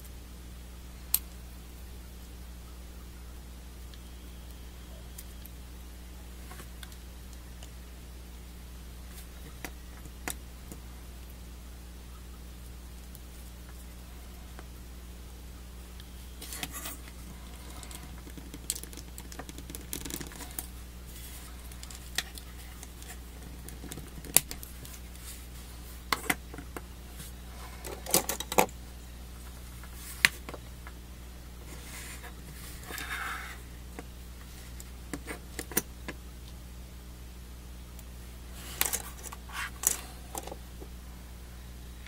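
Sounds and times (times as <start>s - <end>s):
steady low hum: 0.0s - 42.0s
plastic parts clicking and snapping: 17.9s - 20.7s, 27.8s - 28.7s, 38.8s - 40.6s.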